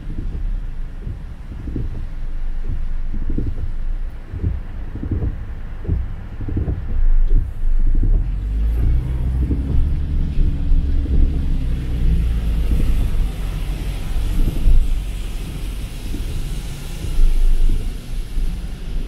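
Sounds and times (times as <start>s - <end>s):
engine and tyres rumbling: 0.0s - 19.0s
heavy rain drumming on a car: 0.0s - 19.0s
low thuds: 0.0s - 19.0s.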